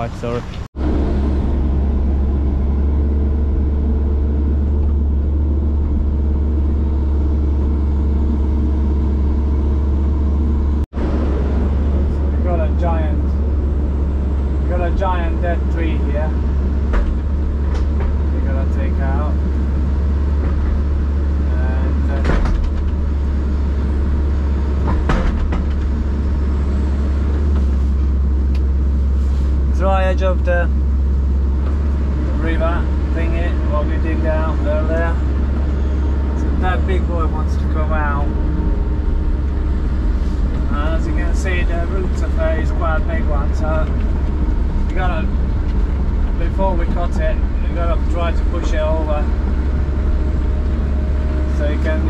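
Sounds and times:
excavator diesel engine running: 0:00.0 - 0:52.0
sharp knocks: 0:24.8 - 0:26.0.

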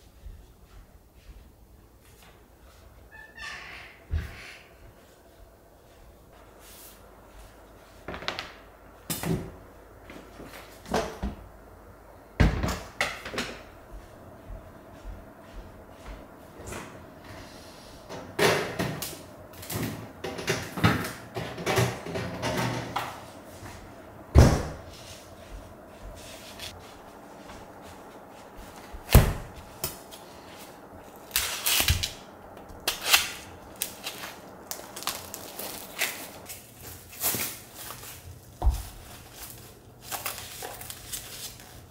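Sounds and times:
plastic film crackling: 0:31.0 - 0:41.9
knife slitting plastic wrap: 0:31.2 - 0:32.2, 0:32.9 - 0:38.2, 0:39.3 - 0:41.9.

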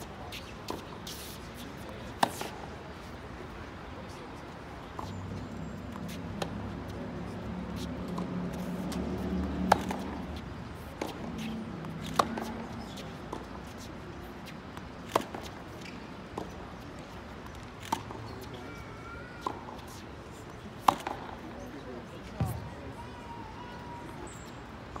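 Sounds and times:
racket hitting tennis ball: 0:09.6 - 0:13.8, 0:15.0 - 0:15.8, 0:20.8 - 0:21.4.

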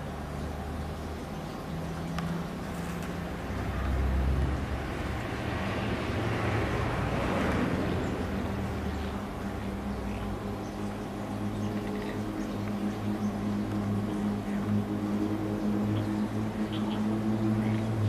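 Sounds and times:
low engine rumble: 0:00.0 - 0:18.0
passing vehicle: 0:00.0 - 0:18.0.

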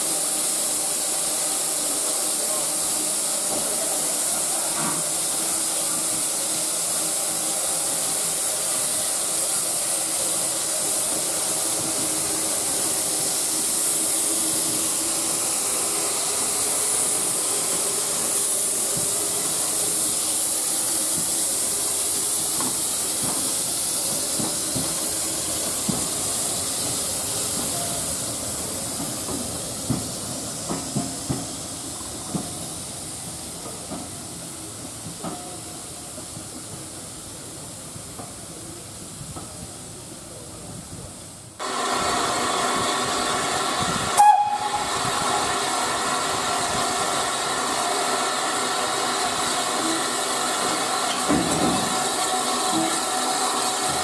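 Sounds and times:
steam engine hissing: 0:00.0 - 0:54.0
wheels clicking over rail joints: 0:48.5 - 0:54.0.

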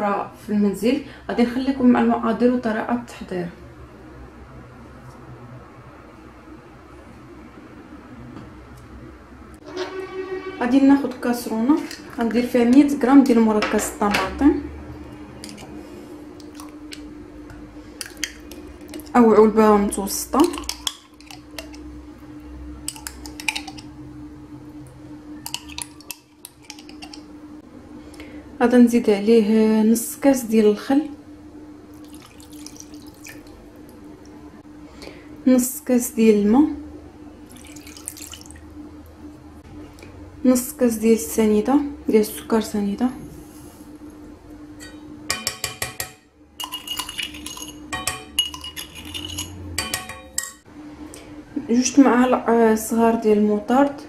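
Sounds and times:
faint steady hum: 0:00.0 - 0:54.0
metal spoon scraping glass jar: 0:46.6 - 0:50.5.

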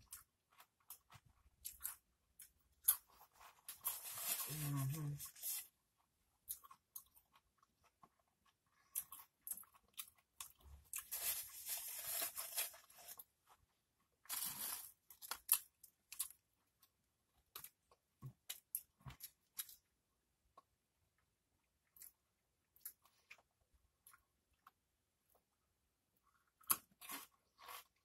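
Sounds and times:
crunching and chewing chips: 0:00.0 - 0:13.6, 0:14.2 - 0:19.9
chips rustling in a bowl: 0:03.6 - 0:05.7, 0:11.0 - 0:13.3, 0:14.3 - 0:15.0.

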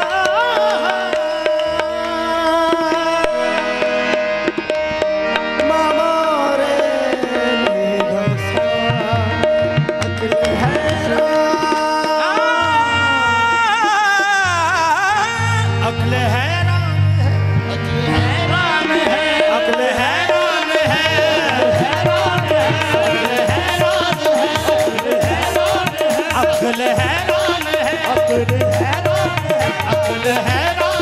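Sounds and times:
harmonium melody: 0:00.0 - 0:31.0
tabla strokes: 0:06.8 - 0:14.5, 0:17.5 - 0:31.0.

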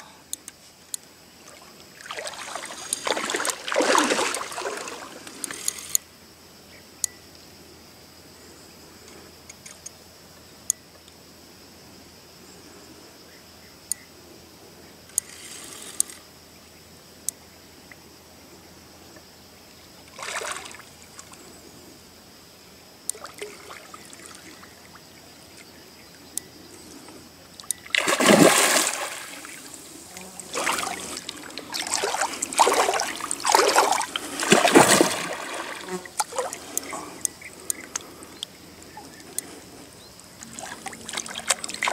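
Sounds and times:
fish splashing at water surface: 0:02.0 - 0:05.6, 0:27.9 - 0:29.8, 0:30.4 - 0:36.9, 0:40.6 - 0:41.9.

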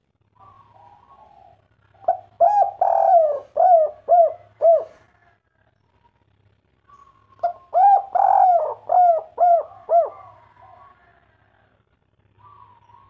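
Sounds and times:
dove cooing: 0:00.4 - 0:05.3, 0:06.9 - 0:11.7, 0:12.4 - 0:13.0.

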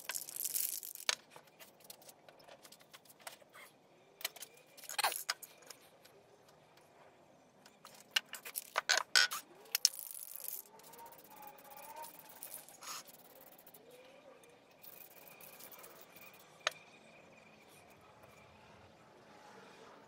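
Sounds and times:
aerosol can clicks and rattles: 0:00.0 - 0:01.2, 0:07.9 - 0:11.0.

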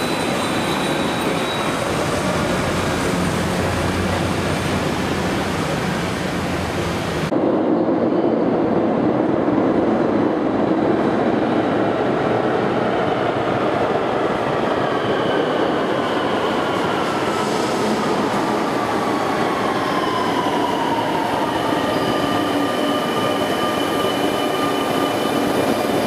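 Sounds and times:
high brake squeal: 0:00.0 - 0:02.4, 0:21.8 - 0:26.0
train wheels rumbling on rails: 0:00.0 - 0:26.0.

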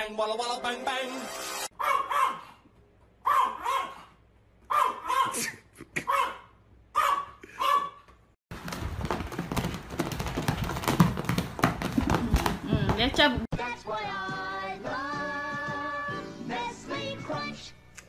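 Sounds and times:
pet animal bark-like calls: 0:01.8 - 0:02.6, 0:03.2 - 0:05.4, 0:06.0 - 0:08.1.

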